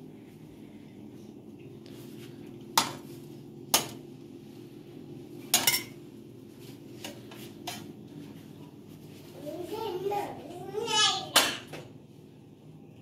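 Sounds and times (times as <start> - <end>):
steady low hum: 0.0 - 13.0
metal pot lid and spoon clanking: 5.5 - 5.9.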